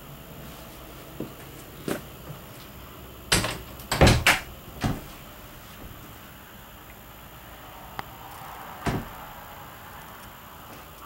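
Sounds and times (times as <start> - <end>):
knocks and clunks: 3.3 - 5.2, 8.8 - 9.2.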